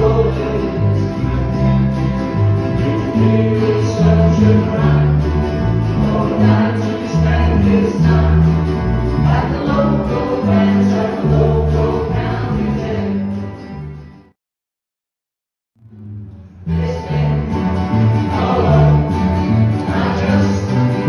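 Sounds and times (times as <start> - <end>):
voices singing: 0.0 - 13.5, 16.6 - 21.0
walking electric bass line: 0.0 - 14.2
strummed acoustic guitars: 0.0 - 14.4, 15.8 - 21.0.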